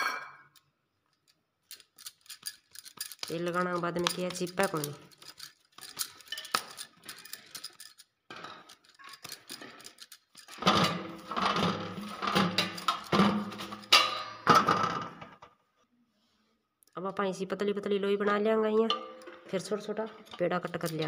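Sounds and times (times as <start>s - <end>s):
bangles clinking: 0.4s - 10.6s.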